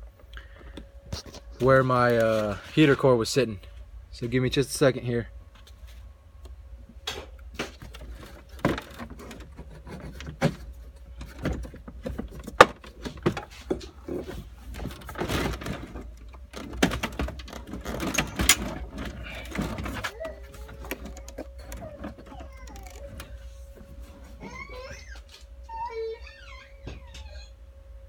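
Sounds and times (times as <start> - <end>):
plastic dashboard being pried: 7.6 - 23.4.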